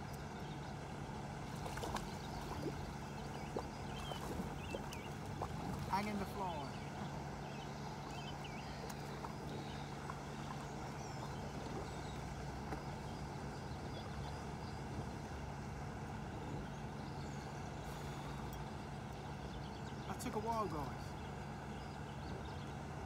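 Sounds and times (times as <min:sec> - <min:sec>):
low mechanical hum: 0:00.0 - 0:23.0
faint ticks: 0:08.8 - 0:10.6.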